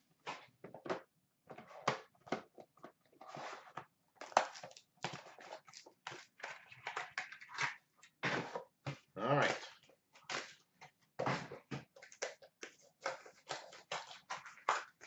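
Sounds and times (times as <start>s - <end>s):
packaging rustling and crinkling: 3.2s - 8.7s.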